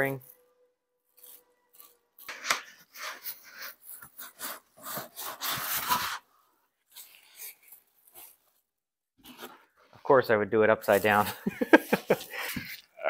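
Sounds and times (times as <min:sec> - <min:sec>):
cardboard and foam scraping: 0:01.2 - 0:09.8.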